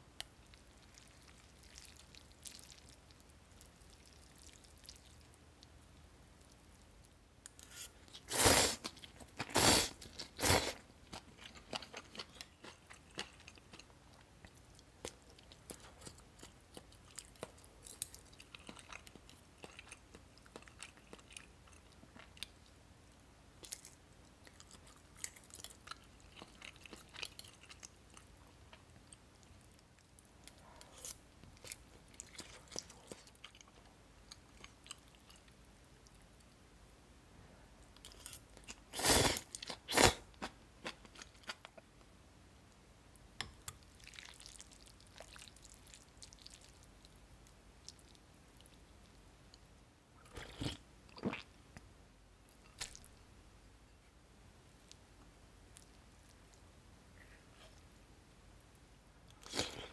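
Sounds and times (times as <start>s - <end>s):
chewing and crunching: 0.4s - 5.4s, 7.5s - 22.8s, 23.6s - 36.5s, 43.7s - 48.8s.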